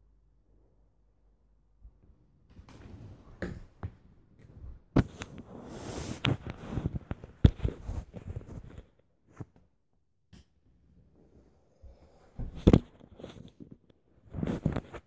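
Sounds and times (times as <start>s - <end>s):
fabric rustling on microphone: 4.6s - 9.6s, 12.4s - 15.0s.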